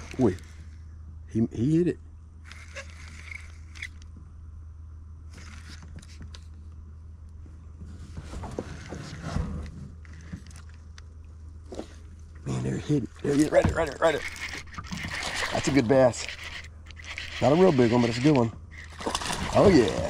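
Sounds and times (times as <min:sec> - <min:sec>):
fishing reel clicks and rattles: 0:00.0 - 0:00.7, 0:02.4 - 0:04.1, 0:05.3 - 0:06.5, 0:13.2 - 0:20.0
steady low hum: 0:00.0 - 0:20.0.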